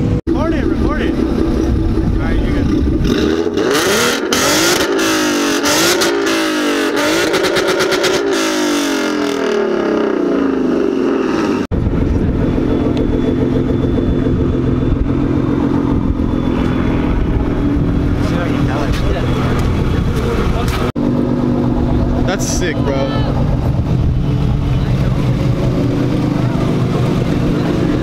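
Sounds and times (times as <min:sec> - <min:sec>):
car engine idling: 0:00.0 - 0:03.6, 0:10.2 - 0:28.0
car engine revving: 0:00.0 - 0:28.0
exhaust crackles: 0:00.0 - 0:28.0.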